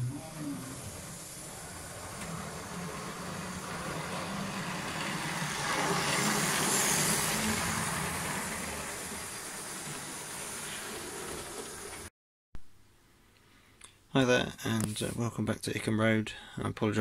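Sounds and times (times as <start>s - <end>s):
model train whirring rumble: 0.0s - 12.1s.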